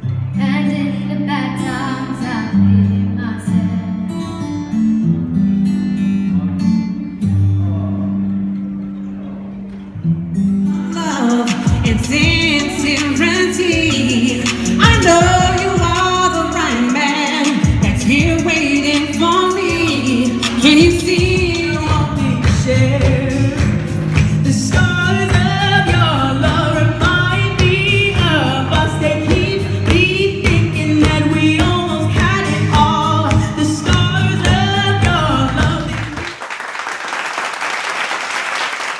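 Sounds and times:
woman singing into a microphone: 0.4s - 4.0s, 10.7s - 36.2s
backing track with steady beat: 11.0s - 36.2s
audience applauding: 23.5s - 25.5s, 34.4s - 38.9s.

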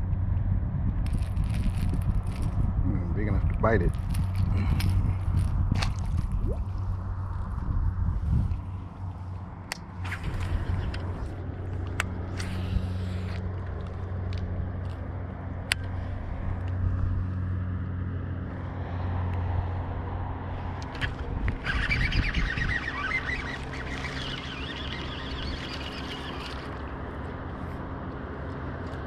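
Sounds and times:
electric trolling motor humming: 20.8s - 28.4s.

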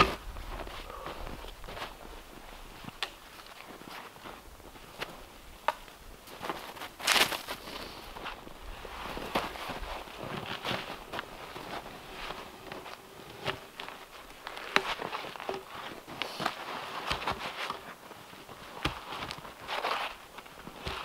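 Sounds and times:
boots crunching in snow: 6.2s - 21.0s.

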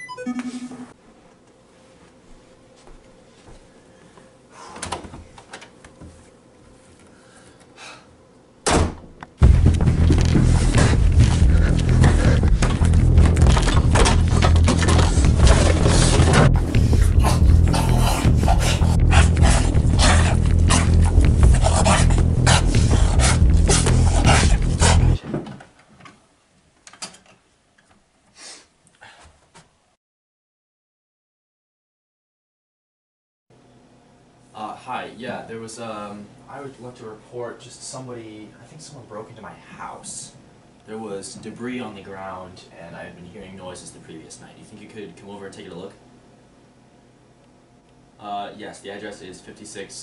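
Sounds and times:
door slamming: 8.6s - 9.8s
loud music: 9.4s - 25.2s
door rustling and knocks: 12.5s - 16.6s.

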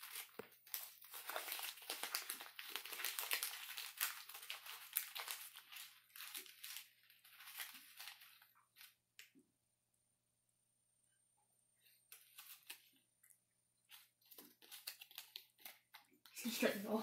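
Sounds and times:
paper bills crinkling: 0.0s - 9.0s, 12.1s - 13.0s, 13.9s - 17.0s.

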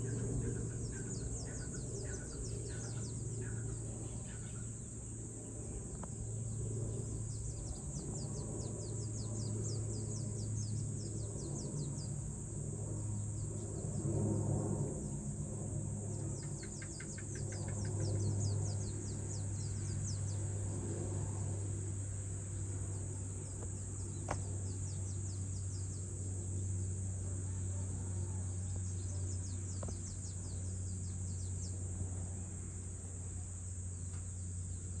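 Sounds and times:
bird calls: 0.0s - 4.8s, 16.2s - 20.4s
low steady hum: 0.0s - 35.0s
rapid insect chirps: 0.0s - 35.0s.

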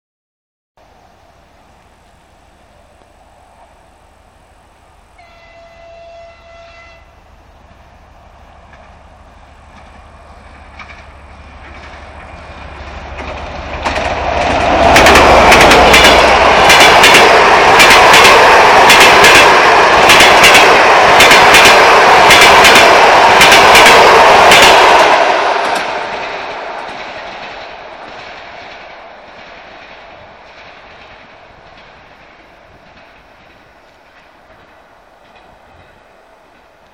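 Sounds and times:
train rumble: 0.8s - 36.9s
distant locomotive horn: 5.1s - 7.3s
wheels clacking over rail joints: 8.5s - 36.9s.

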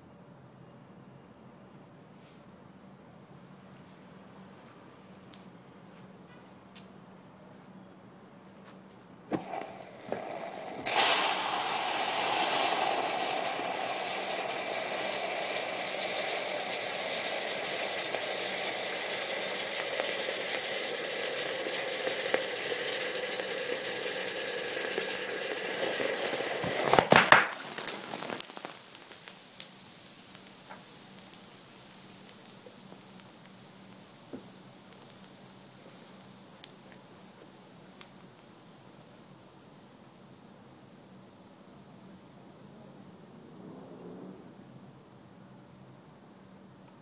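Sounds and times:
small pops: 9.3s - 38.5s
thermite burning with loud hiss: 9.3s - 45.0s
loud cracks and crackles: 26.0s - 31.5s.

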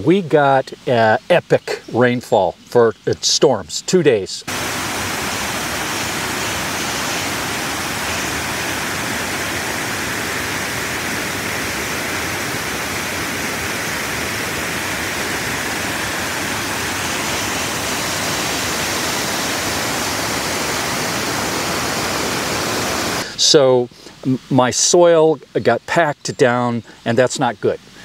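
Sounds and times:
water rushing over rock ledges: 4.5s - 23.5s.

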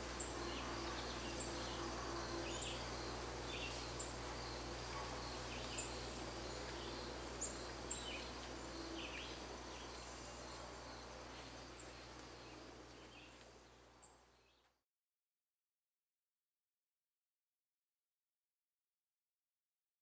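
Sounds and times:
low background hum: 0.0s - 14.8s.

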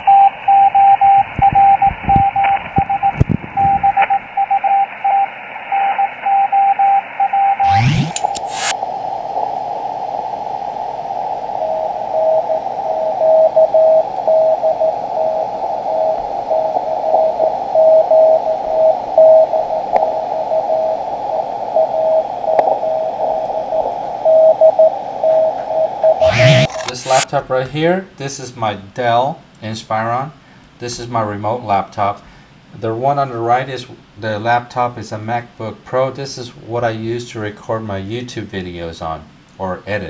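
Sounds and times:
morse code tone keying: 0.0s - 8.7s
lower-pitched morse signal: 0.0s - 27.3s
radio receiver hiss: 0.0s - 27.3s
burst of noise: 7.6s - 27.3s.

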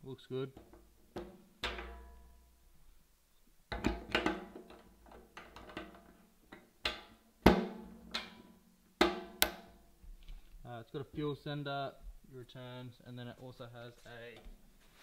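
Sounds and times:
metal tank ringing: 1.6s - 2.5s
hollow knocks on metal tank: 7.5s - 8.4s.

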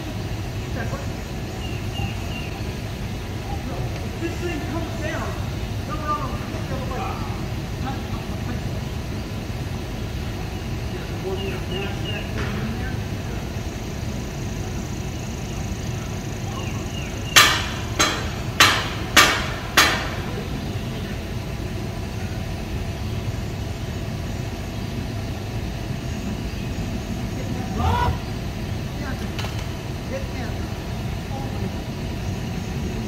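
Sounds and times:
hammer blows on metal: 17.1s - 20.3s.

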